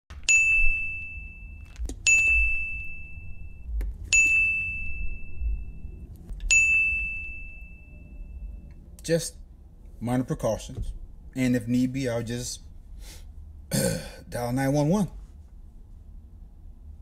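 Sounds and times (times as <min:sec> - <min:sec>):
low rumble: 0:00.1 - 0:10.2
bell-like ding: 0:00.3 - 0:08.7.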